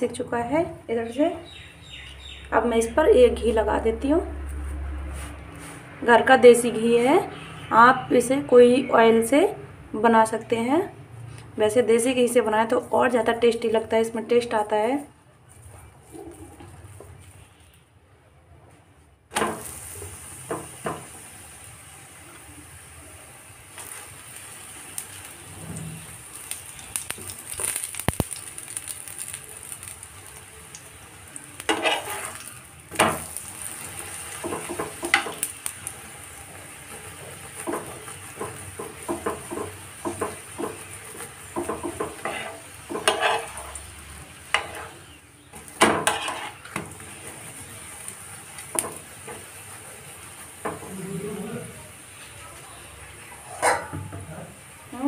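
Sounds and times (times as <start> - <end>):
flatbread sizzling in ghee: 19.3 - 55.0
steel spoon scraping and tapping pan: 31.6 - 33.3, 36.9 - 43.8, 44.5 - 45.0, 45.8 - 46.9.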